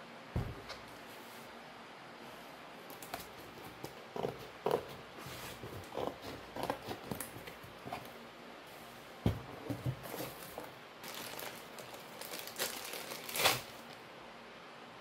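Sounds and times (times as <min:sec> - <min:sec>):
scissors cutting packing tape: 0:05.6 - 0:08.1, 0:12.4 - 0:14.0
cardboard box handled: 0:09.3 - 0:10.7.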